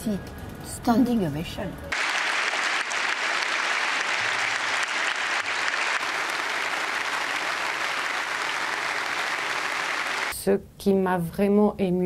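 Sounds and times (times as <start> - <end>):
crowd applauding: 1.9 - 10.3.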